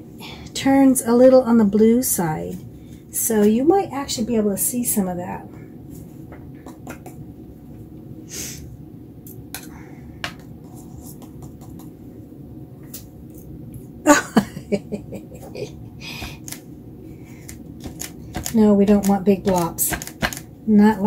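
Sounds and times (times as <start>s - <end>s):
low room hum: 0.0s - 21.0s
brush and cup clicks: 17.5s - 20.5s.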